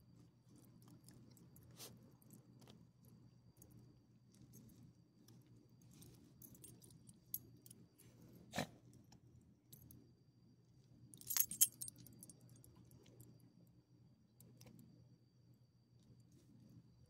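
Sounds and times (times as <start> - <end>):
dog tags jingling: 11.2 - 12.0.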